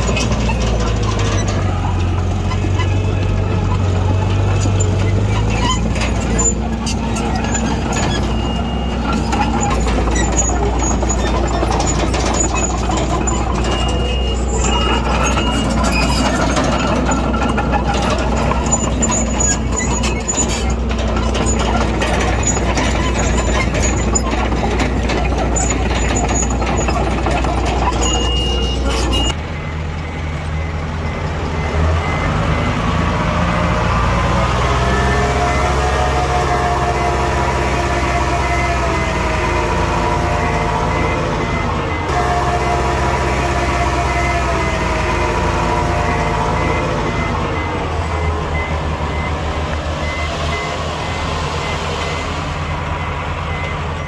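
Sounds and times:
heavy diesel engines running: 0.0s - 54.0s.

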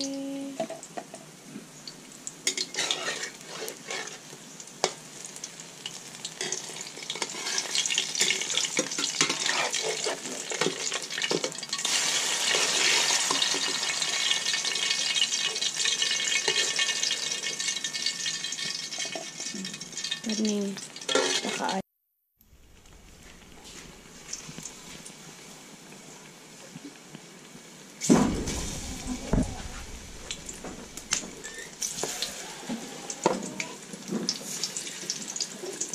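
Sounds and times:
food sizzling in hot oil: 0.0s - 21.8s, 22.4s - 35.9s
metal spatula scraping pan: 2.5s - 4.3s, 6.4s - 11.0s, 21.1s - 21.8s, 28.5s - 33.4s.

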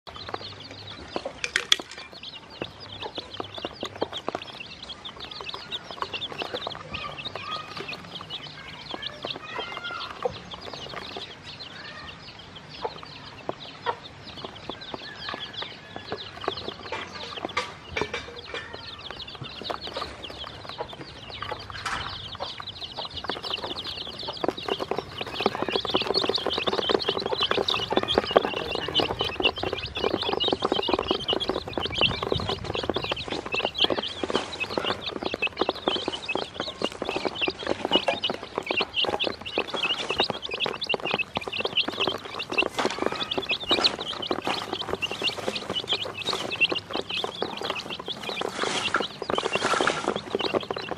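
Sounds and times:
chicks peeping: 0.0s - 50.9s.

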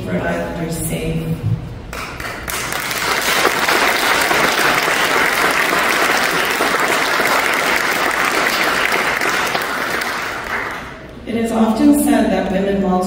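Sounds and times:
audience applauding: 1.9s - 11.1s.

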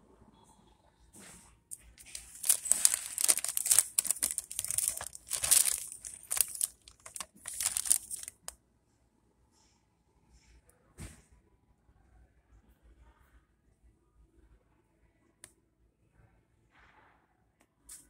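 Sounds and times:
plastic sleeve crinkling: 1.7s - 8.5s.

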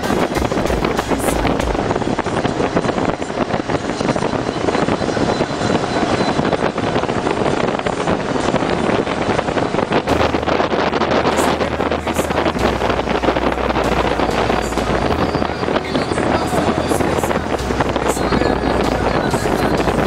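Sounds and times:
motorboat motor running: 0.0s - 20.0s
wind buffeting microphone: 0.0s - 20.0s.

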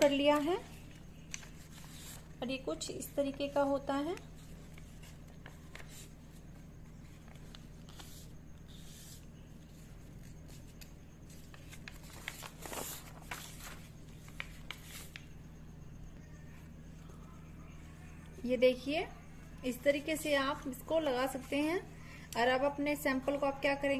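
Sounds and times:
paper rustling and crinkling: 0.0s - 2.4s, 3.0s - 15.3s
steady low hum: 0.0s - 23.9s.

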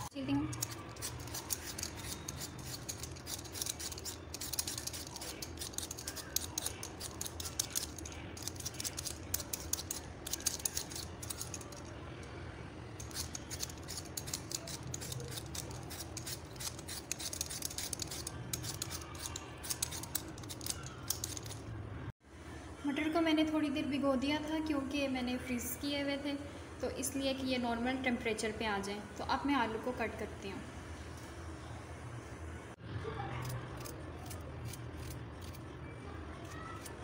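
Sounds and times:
blade scraping potato skin: 0.5s - 11.9s, 13.0s - 21.6s, 33.4s - 35.6s.

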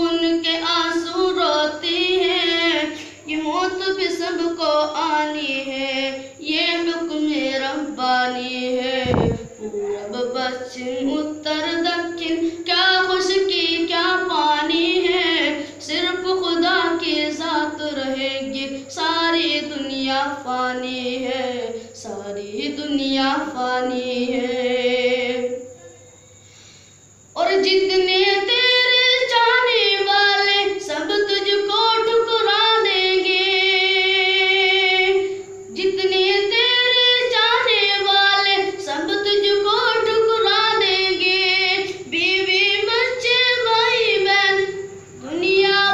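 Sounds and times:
boy singing unaccompanied: 0.0s - 26.0s, 27.3s - 45.9s.

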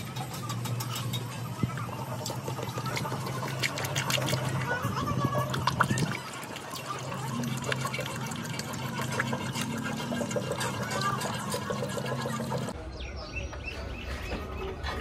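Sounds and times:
oil pouring into a funnel: 2.1s - 12.8s.

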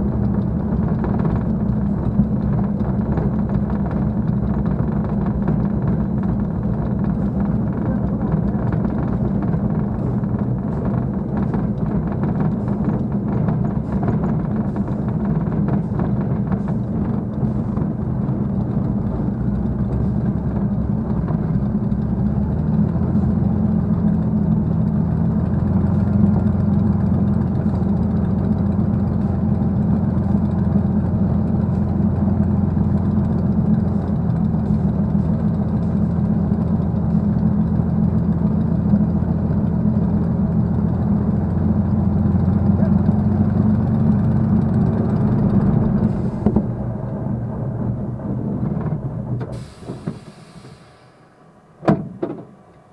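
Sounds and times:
aircraft piston engine droning: 45.1s - 48.2s, 49.4s - 52.9s.

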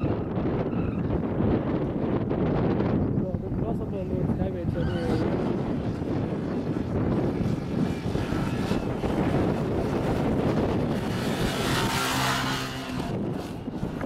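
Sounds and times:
motorcycle passing with whoosh: 0.0s - 3.1s, 4.0s - 14.0s
motorcycle engines running: 0.0s - 14.0s.

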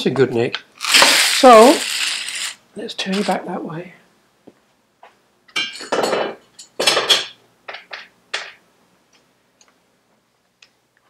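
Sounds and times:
metal tools scraping and rattling: 0.8s - 3.4s.

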